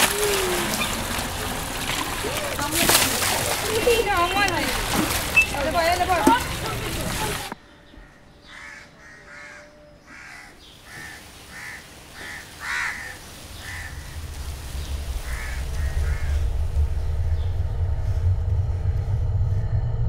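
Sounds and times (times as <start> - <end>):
low rumble: 0.0 - 7.6, 13.2 - 20.0
crows cawing: 7.8 - 16.6.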